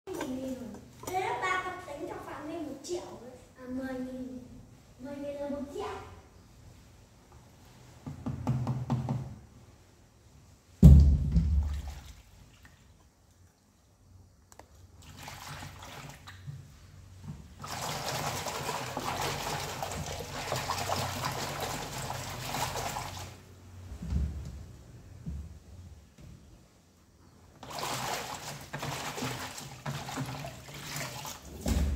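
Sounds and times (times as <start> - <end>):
tap water running into basin: 15.0 - 16.6, 17.6 - 23.4, 27.6 - 31.8.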